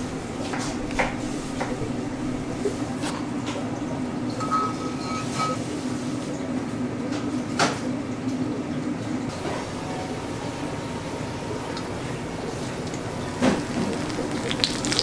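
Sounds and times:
steady low hum: 0:00.0 - 0:15.0
tableware clinking: 0:04.4 - 0:05.6.

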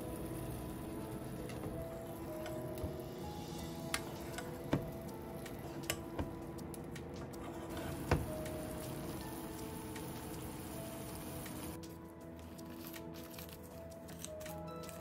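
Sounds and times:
soft background music: 0:00.0 - 0:15.0
sauce simmering in a frying pan: 0:08.2 - 0:11.8.

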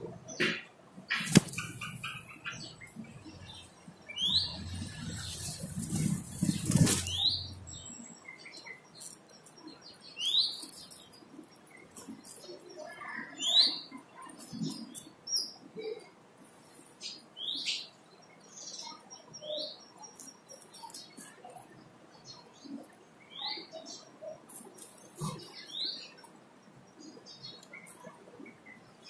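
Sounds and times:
bird chirping: 0:00.3 - 0:15.7
wings fluttering: 0:01.1 - 0:02.3, 0:04.8 - 0:07.8
nest material rustling: 0:01.2 - 0:01.8, 0:05.0 - 0:07.6.

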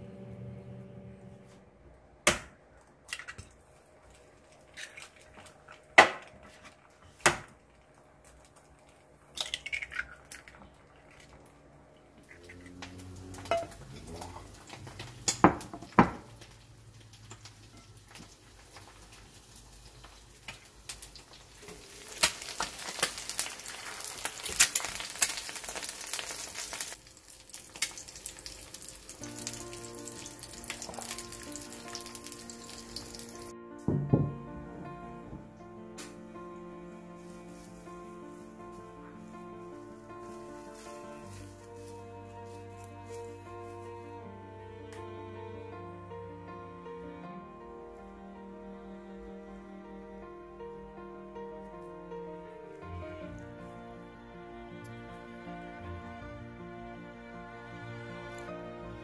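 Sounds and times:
food sizzling in frying pan: 0:12.8 - 0:33.5
kitchenware clinking: 0:13.4 - 0:16.4.

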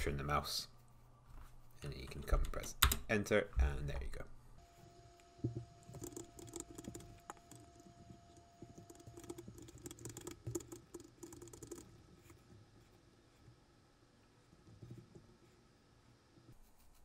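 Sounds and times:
faint keyboard clicking: 0:05.5 - 0:12.0.

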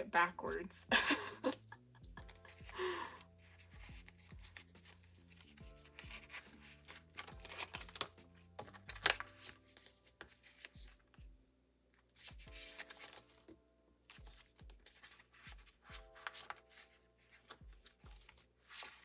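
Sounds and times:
soft background music: 0:00.0 - 0:19.0
plastic sleeves crinkling: 0:03.4 - 0:11.2, 0:12.0 - 0:19.0.

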